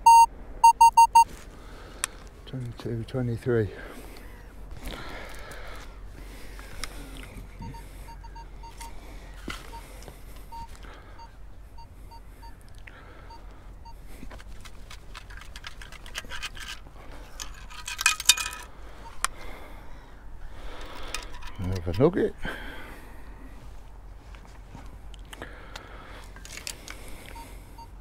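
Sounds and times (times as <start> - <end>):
metal detector beeps: 0.0 - 1.3, 7.6 - 9.0, 10.5 - 12.6.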